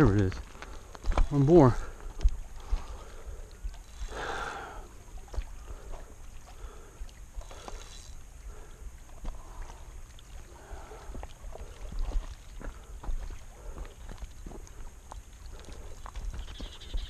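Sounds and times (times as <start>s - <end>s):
faint clicks: 2.1s - 10.3s.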